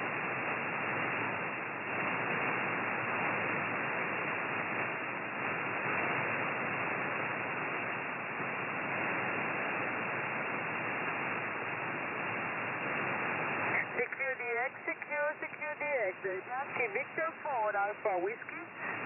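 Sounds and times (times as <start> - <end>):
radio static hiss: 0.0 - 19.0.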